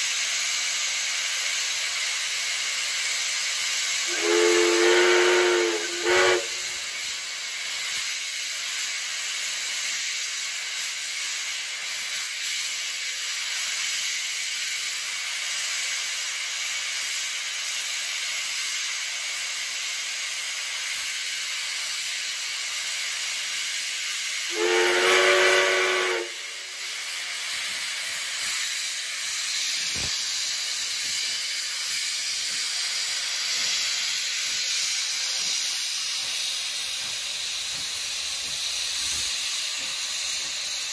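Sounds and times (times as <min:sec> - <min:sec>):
steam hissing: 0:00.0 - 0:40.9
steam locomotive whistle blast: 0:04.0 - 0:07.0, 0:24.5 - 0:27.1.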